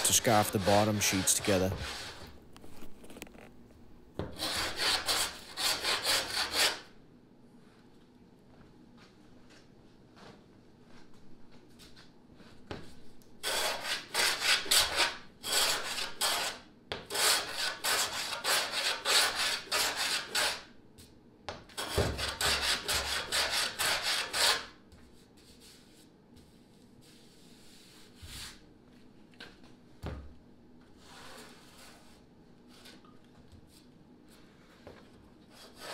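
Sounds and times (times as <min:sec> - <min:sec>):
hand plane shaving wood: 0:00.0 - 0:02.3, 0:04.4 - 0:06.8, 0:13.4 - 0:20.6, 0:21.8 - 0:24.6.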